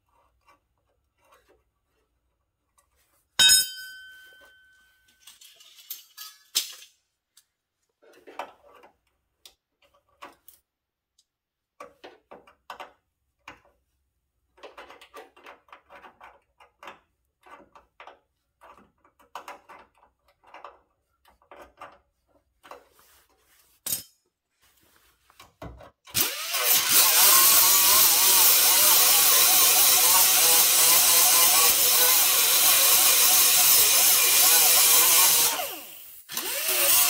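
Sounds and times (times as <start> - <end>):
sheet metal and tools clinking: 3.4 - 7.2, 23.8 - 24.4.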